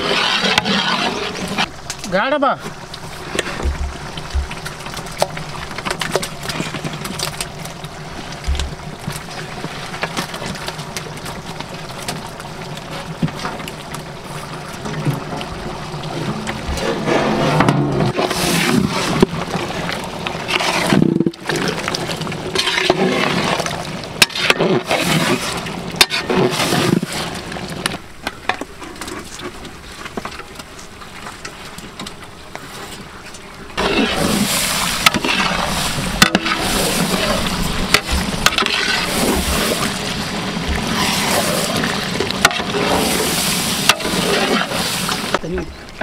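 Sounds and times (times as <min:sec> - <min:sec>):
ladle scraping metal pot: 0:00.0 - 0:01.8, 0:16.1 - 0:19.6, 0:20.3 - 0:27.9, 0:33.7 - 0:45.4
wet squelching and sizzling: 0:00.0 - 0:45.4.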